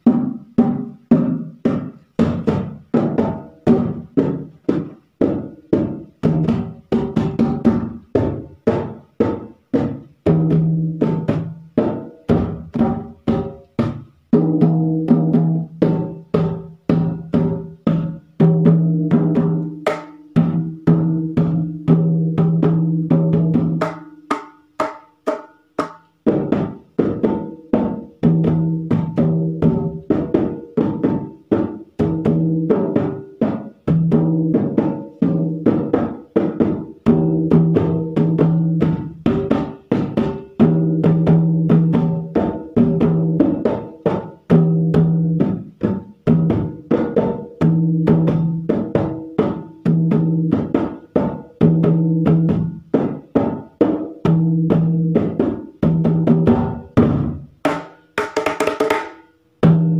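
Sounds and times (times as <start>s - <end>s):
hand drum playing fast rhythm: 0.0s - 59.9s.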